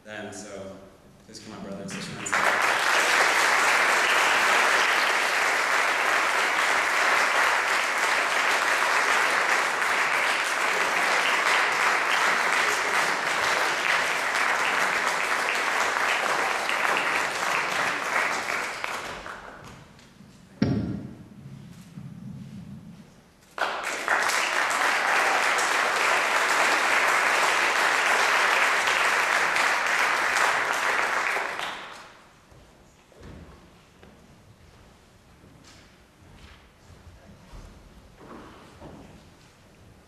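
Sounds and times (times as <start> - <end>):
audience applauding: 1.9 - 19.8, 23.6 - 32.2.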